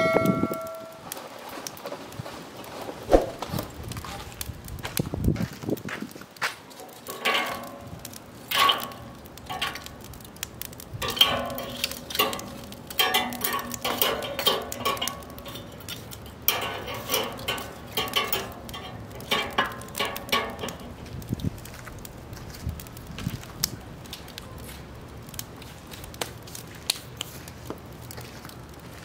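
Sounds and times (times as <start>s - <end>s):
metal tongs clinking on charcoal: 0.0s - 1.2s, 6.8s - 21.8s.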